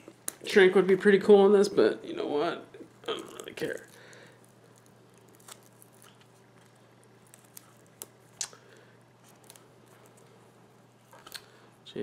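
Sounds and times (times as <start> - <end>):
tape crinkling and clicking: 0.0 - 0.5, 2.8 - 11.6
steady low hum: 0.0 - 12.0.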